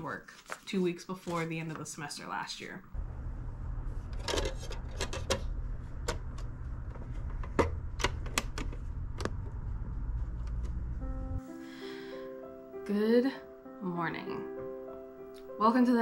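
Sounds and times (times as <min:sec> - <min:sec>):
steady low hum: 0:02.8 - 0:11.4.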